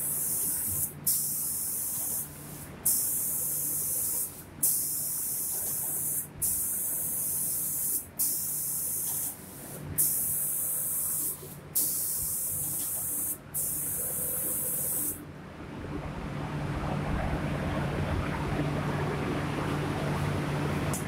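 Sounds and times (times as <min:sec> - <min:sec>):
spray gun hissing: 0:00.0 - 0:15.2
low machine hum: 0:11.4 - 0:21.0.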